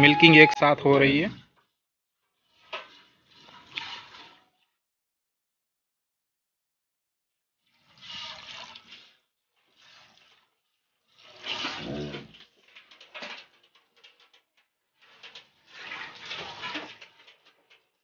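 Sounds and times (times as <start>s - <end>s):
low animal call: 0.0s - 1.2s, 11.8s - 12.3s
milk squirting into steel pail: 7.8s - 10.4s, 11.1s - 12.6s.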